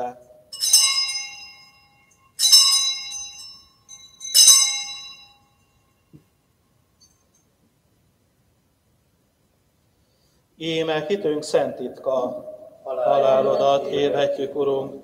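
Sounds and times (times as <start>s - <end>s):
altar bell ringing: 0.5s - 5.9s.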